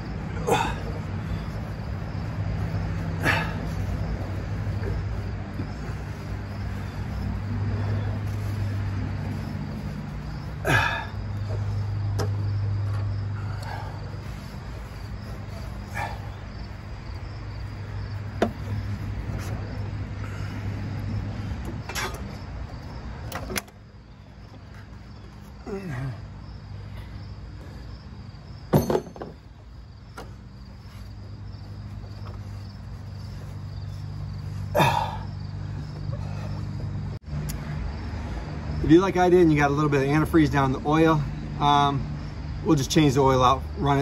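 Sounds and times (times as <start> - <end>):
steady low hum: 0.0 - 28.7
insects chirping: 0.0 - 44.0
engine parts clinking: 28.5 - 37.0.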